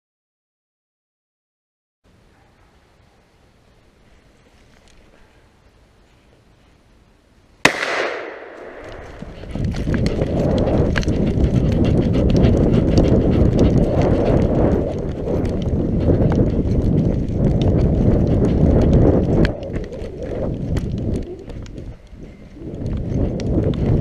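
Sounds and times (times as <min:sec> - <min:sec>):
shotgun shot: 0:07.6 - 0:09.2
low rumble of movement: 0:08.4 - 0:24.0
running footsteps on gravel: 0:08.6 - 0:24.0.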